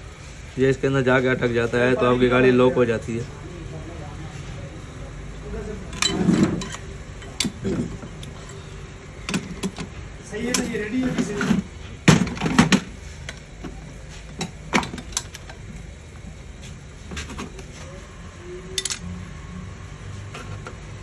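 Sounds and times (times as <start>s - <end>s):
metallic clicks and knocks of tools: 18.8s - 19.1s.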